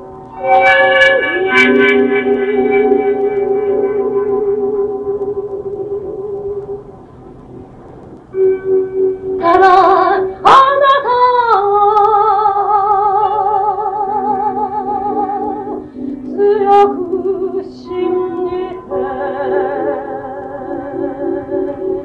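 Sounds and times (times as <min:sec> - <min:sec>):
sustained instrumental music: 0:00.0 - 0:10.5
woman singing with vibrato: 0:09.4 - 0:22.0.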